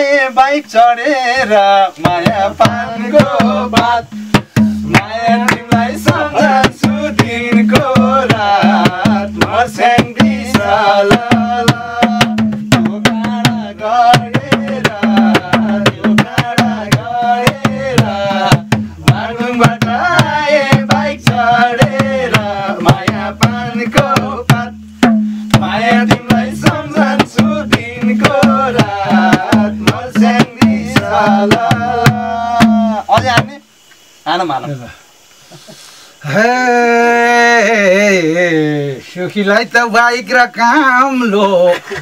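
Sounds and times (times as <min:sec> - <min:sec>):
person singing folk song: 0:00.0 - 0:33.6, 0:36.2 - 0:42.0
barrel hand drum rhythm: 0:01.6 - 0:33.6.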